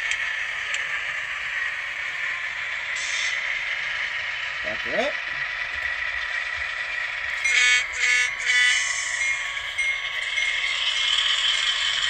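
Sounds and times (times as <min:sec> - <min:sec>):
model diesel engine running: 0:00.0 - 0:12.0
train horn blasts: 0:07.4 - 0:09.1.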